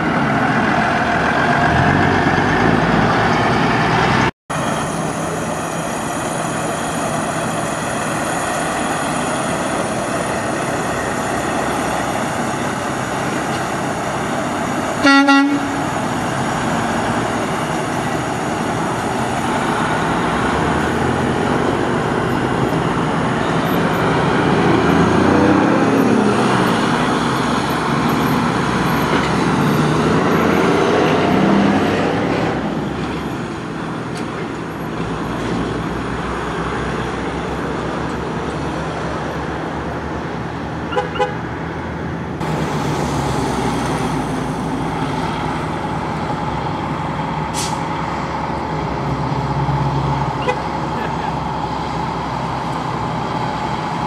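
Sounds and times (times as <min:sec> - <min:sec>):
diesel truck engine pulling away: 0:00.0 - 0:54.0
truck horn: 0:15.0 - 0:16.0, 0:40.9 - 0:41.4, 0:50.4 - 0:51.1.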